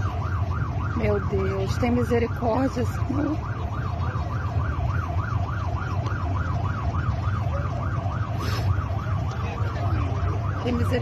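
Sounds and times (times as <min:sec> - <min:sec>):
siren yelping: 0:00.0 - 0:11.0.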